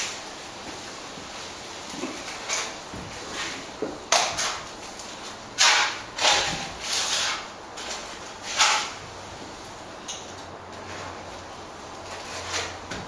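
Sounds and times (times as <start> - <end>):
trowel scraping plaster on wall: 2.1 - 4.7, 5.6 - 9.0, 12.1 - 13.0.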